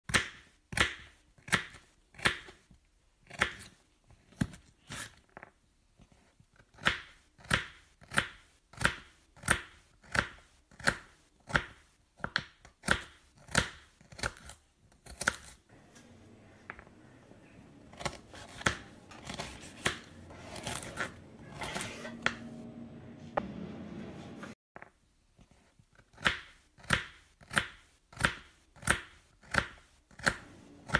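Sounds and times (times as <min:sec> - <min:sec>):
knife chopping on wooden board: 0:17.9 - 0:22.5, 0:26.2 - 0:30.9
knife scraping board: 0:17.9 - 0:22.6.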